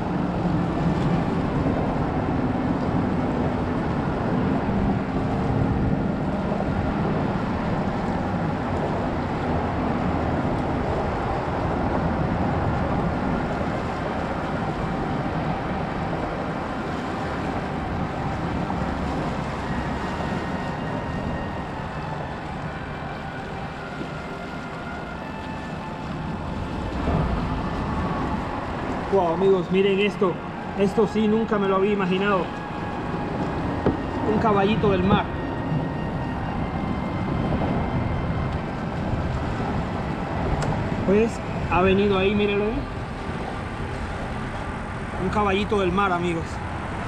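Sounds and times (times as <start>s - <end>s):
distant engine drone: 0.0s - 47.0s
wind on microphone: 0.0s - 47.0s.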